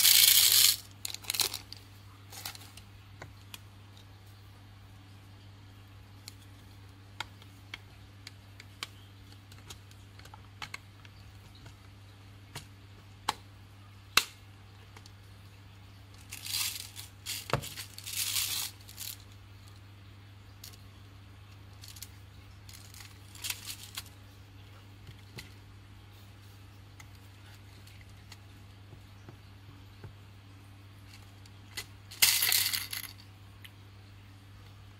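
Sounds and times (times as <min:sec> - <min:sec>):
rustling and scraping: 0:00.0 - 0:02.9, 0:16.2 - 0:19.3, 0:21.8 - 0:24.2.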